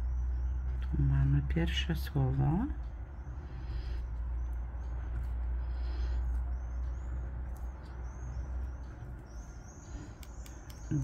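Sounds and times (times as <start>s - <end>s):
steady low rumble: 0.0s - 11.0s
high bird chirps: 5.8s - 11.0s.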